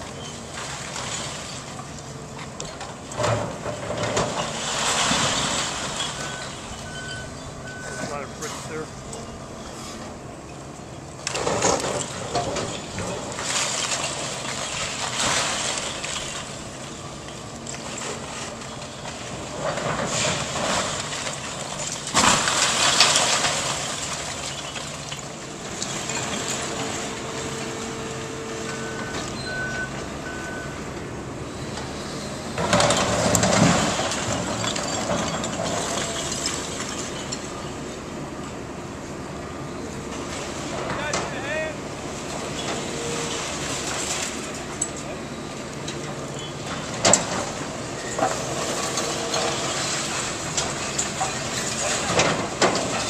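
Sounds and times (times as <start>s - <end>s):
excavator engine under load: 0.0s - 53.0s
brick and rubble crashing down: 18.0s - 25.3s, 32.6s - 37.5s.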